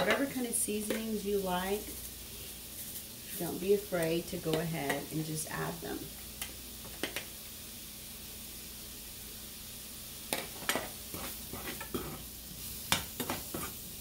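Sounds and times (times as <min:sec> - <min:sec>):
mushrooms sizzling in a skillet: 0:00.0 - 0:14.0
fork stirring in a pan: 0:10.3 - 0:12.3, 0:12.9 - 0:13.9.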